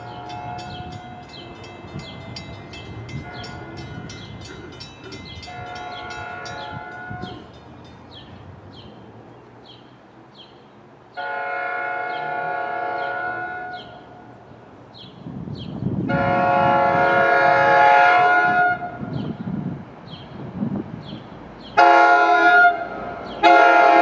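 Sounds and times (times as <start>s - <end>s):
train horn blasts: 0.0s - 7.6s, 11.2s - 14.2s, 16.1s - 19.2s, 21.8s - 24.0s
train low rumble: 0.0s - 24.0s.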